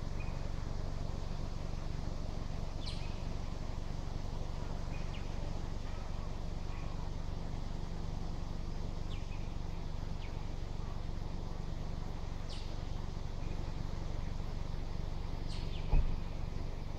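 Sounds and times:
steady low rumble: 0:00.0 - 0:16.9.

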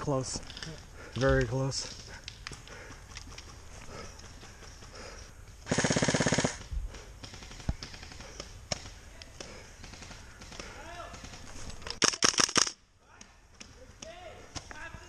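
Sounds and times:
airsoft rifle full-auto burst: 0:05.6 - 0:06.6, 0:12.0 - 0:12.8
airsoft rifle single cracks: 0:12.0 - 0:12.8.

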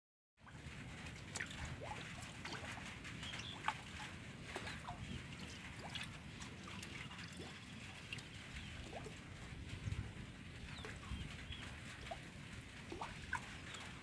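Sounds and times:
steady low rumble: 0:00.4 - 0:14.0
birds chirping: 0:02.0 - 0:09.2, 0:10.6 - 0:12.2.

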